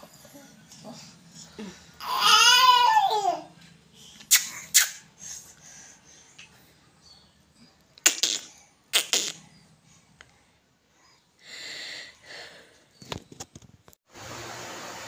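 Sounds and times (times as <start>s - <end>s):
soft hiss of breath: 3.9s - 6.6s.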